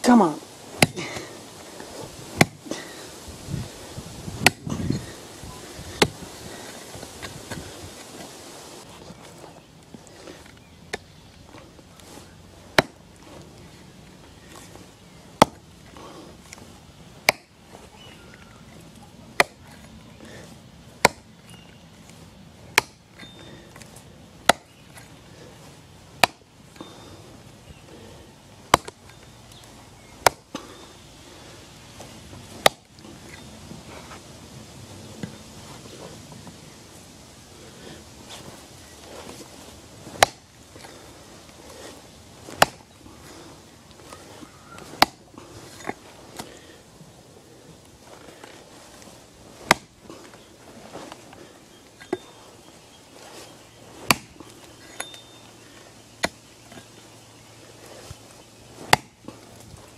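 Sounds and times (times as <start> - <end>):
axe chopping into stump: 0.8 - 1.2, 2.4 - 2.6, 4.4 - 4.8, 12.8 - 13.0, 15.4 - 15.6, 17.2 - 17.5, 19.4 - 19.6, 21.0 - 21.3, 22.7 - 23.0, 24.4 - 24.7, 26.2 - 26.5, 28.7 - 29.0, 30.2 - 30.6, 32.6 - 32.9, 40.0 - 40.5, 42.5 - 42.9, 44.8 - 45.2, 49.6 - 50.0, 54.0 - 55.2, 58.8 - 59.2.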